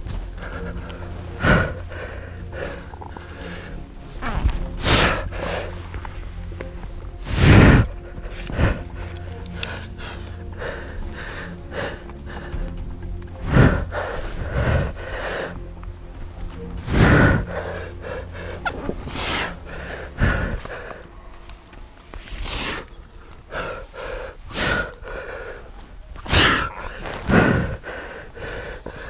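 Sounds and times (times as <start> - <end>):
person exhaling and grunting: 26.2 - 28.2.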